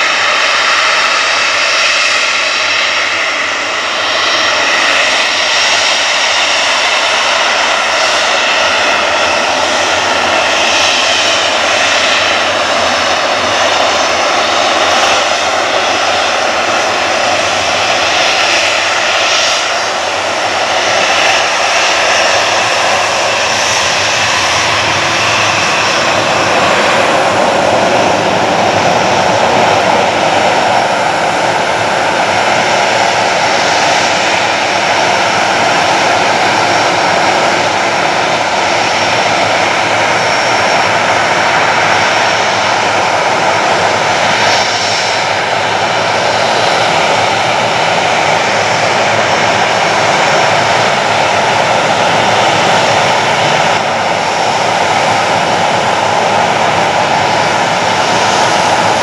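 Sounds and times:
jet engine whine: 0.0s - 59.0s.

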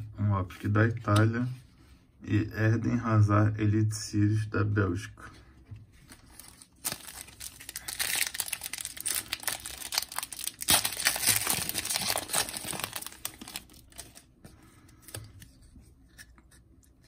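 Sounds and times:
foil wrapper crinkling and tearing: 6.1s - 14.3s.

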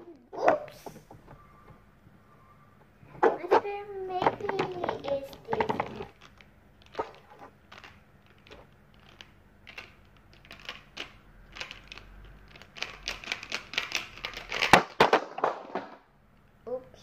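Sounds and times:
plastic toy figures clicking: 3.2s - 15.0s.

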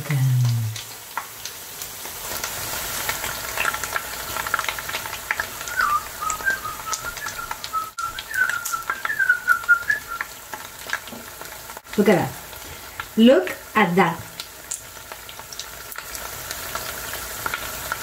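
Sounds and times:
frying oil crackling and sizzling: 0.0s - 18.0s
person whistling a tune: 5.6s - 10.2s.

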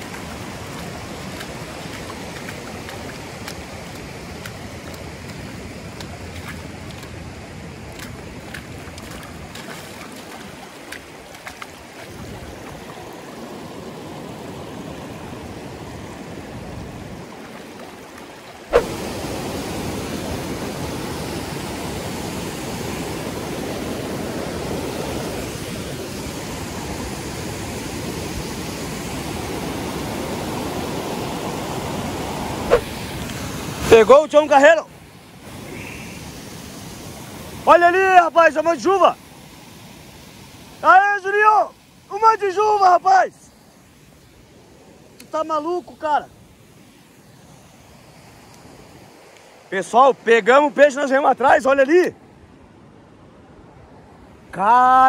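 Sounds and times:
river rapids rushing: 0.0s - 44.0s.

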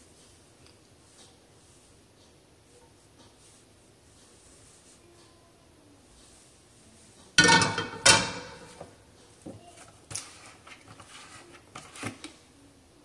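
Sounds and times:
frying pan clanking on metal grate: 7.4s - 8.8s.

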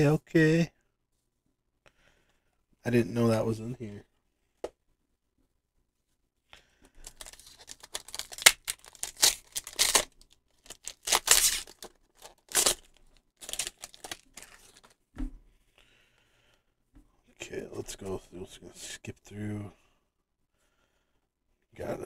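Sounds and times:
foil wrapper tearing and crinkling: 7.0s - 14.9s
light thump: 15.2s - 15.4s.

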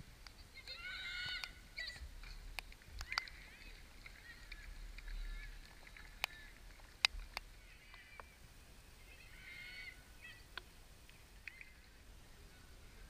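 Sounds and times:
distant players shouting: 0.6s - 2.4s, 7.6s - 10.8s.

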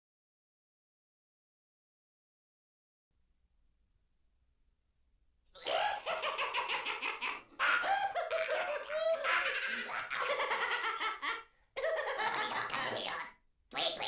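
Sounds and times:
high-pitched creature cackling: 5.6s - 14.0s.

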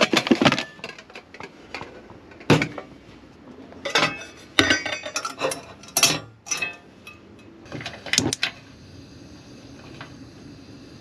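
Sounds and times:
metal cookware clanking: 3.8s - 8.3s.

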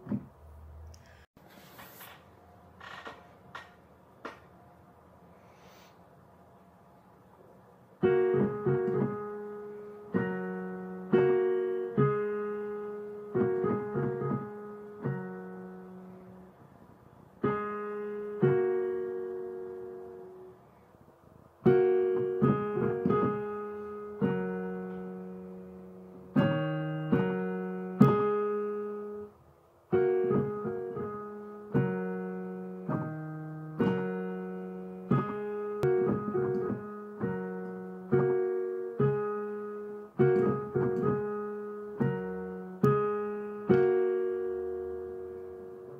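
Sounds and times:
slow piano notes and chords: 0.0s - 1.2s, 7.5s - 45.9s.

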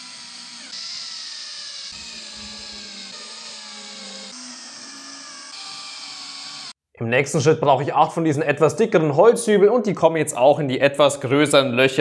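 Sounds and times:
cordless drill motor whine: 0.0s - 6.8s.

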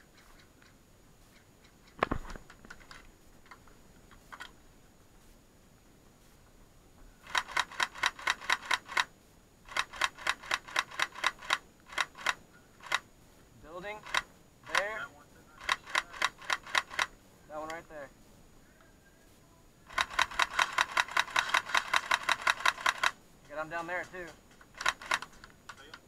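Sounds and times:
airsoft rifle rapid shots: 7.2s - 9.1s, 9.7s - 13.0s, 14.0s - 15.0s, 15.6s - 17.1s, 19.9s - 23.2s, 24.0s - 25.4s.

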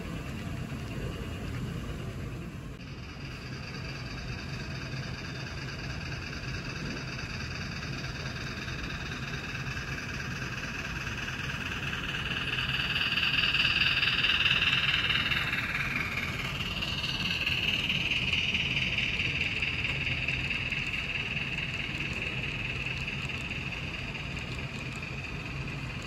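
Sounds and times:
model train wheels rolling on rails: 0.0s - 26.0s.

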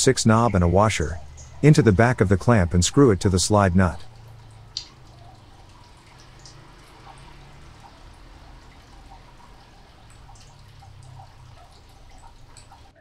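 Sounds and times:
faint small ticks: 4.1s - 7.4s.

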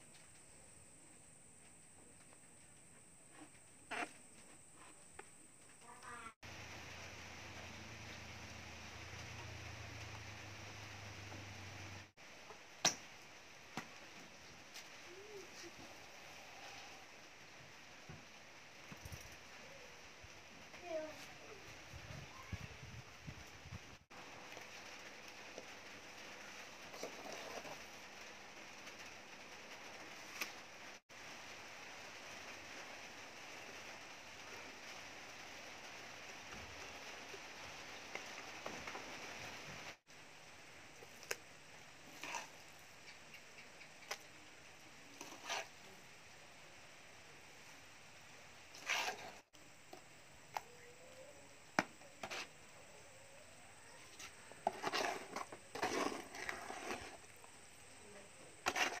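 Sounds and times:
faint background hiss: 0.0s - 59.0s
wet mortar slopping and scraping: 26.9s - 27.8s, 42.1s - 42.8s, 45.1s - 45.8s, 48.7s - 49.4s, 54.1s - 57.6s, 58.6s - 59.0s.

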